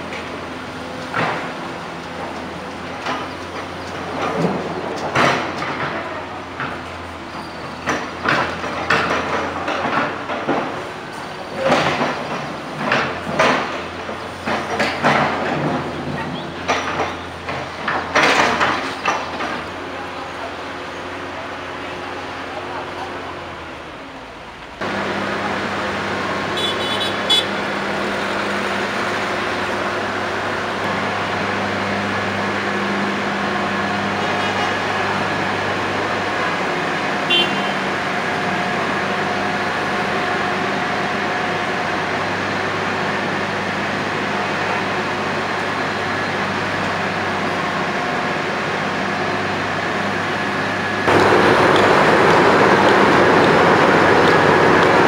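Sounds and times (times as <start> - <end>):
engine drone: 0.0 - 55.0
street traffic noise: 0.0 - 55.0
low engine hum: 37.4 - 55.0.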